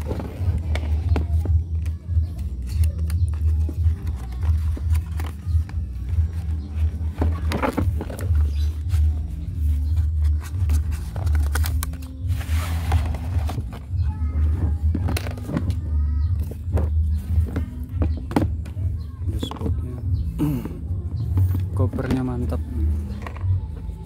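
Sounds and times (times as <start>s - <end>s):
plastic scraping on cardboard: 2.6s - 15.8s
cardboard rustling: 3.2s - 15.6s
plastic case scuffs and taps: 7.1s - 9.0s.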